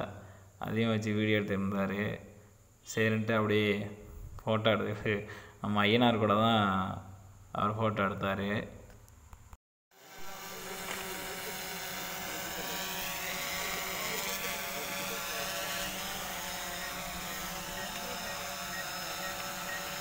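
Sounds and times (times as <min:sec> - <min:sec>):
engine drone: 0:10.0 - 0:20.0.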